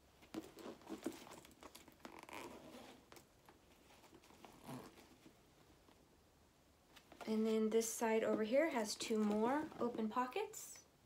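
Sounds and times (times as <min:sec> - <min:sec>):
leather bag rustling and clicking: 0:00.2 - 0:05.4.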